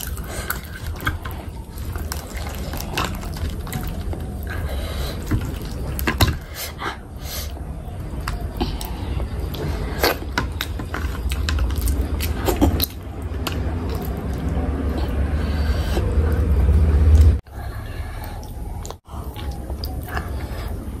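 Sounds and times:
wet eating mouth sounds: 0.0s - 21.0s
loud low rumble: 13.0s - 18.1s.

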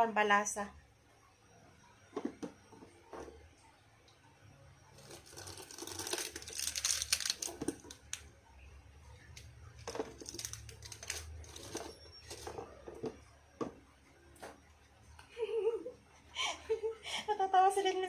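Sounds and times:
plastic packet crinkling and tearing: 5.0s - 8.2s, 10.2s - 12.4s.

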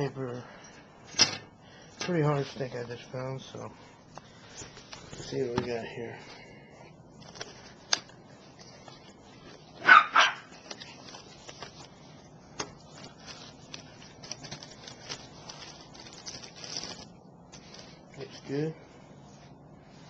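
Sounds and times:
plastic packaging crinkling: 7.2s - 18.6s
dog barking: 9.8s - 10.5s.

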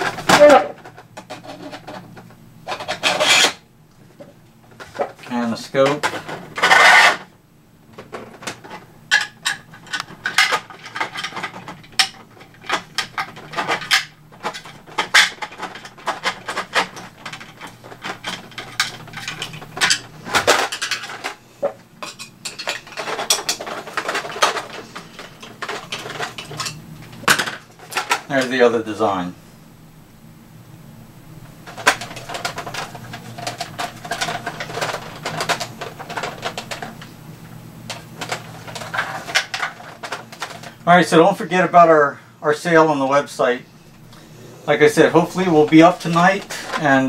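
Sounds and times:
plastic scraping: 0.0s - 3.6s, 4.2s - 7.3s, 9.5s - 21.8s, 22.6s - 28.3s, 31.6s - 37.1s, 37.8s - 40.9s
plastic pieces clicking and clattering: 8.0s - 21.4s, 22.0s - 28.4s, 31.7s - 37.1s, 37.9s - 40.8s, 45.3s - 47.0s.

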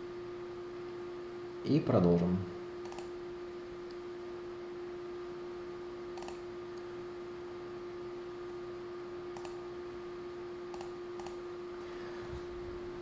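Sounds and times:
steady electrical hum: 0.0s - 13.0s
computer input clicks: 2.8s - 3.1s, 6.2s - 6.4s, 9.4s - 9.6s, 10.7s - 11.4s.

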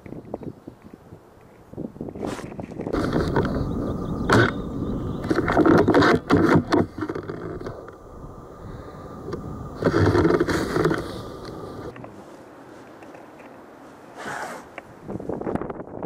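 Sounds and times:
rifle handling scraping and rustling: 2.2s - 3.6s, 5.2s - 7.8s, 9.8s - 14.8s.

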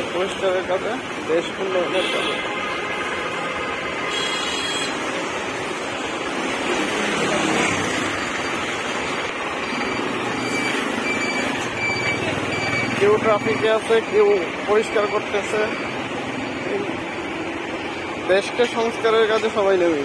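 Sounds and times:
street traffic: 0.0s - 20.0s
short high beeps: 9.6s - 16.9s.

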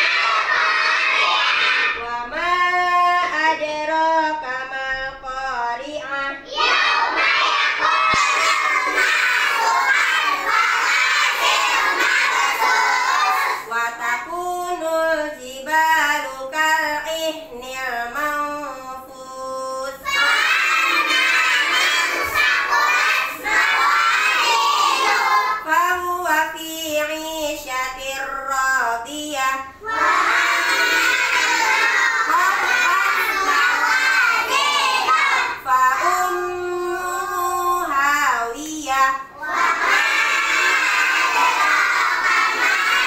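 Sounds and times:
children singing in unison: 0.0s - 17.1s, 19.0s - 25.8s, 29.7s - 37.3s, 39.2s - 43.0s
woman singing: 2.0s - 6.4s, 13.6s - 20.0s, 25.6s - 29.8s, 35.6s - 39.3s.

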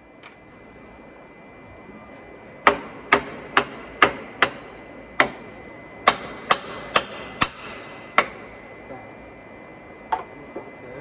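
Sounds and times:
hammer striking steel: 2.6s - 5.4s, 6.0s - 8.4s.

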